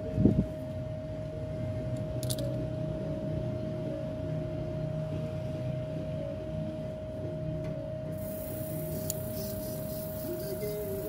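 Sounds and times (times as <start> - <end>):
steady tonal hum: 0.0 - 11.0
airbrush parts clicking: 8.6 - 10.7.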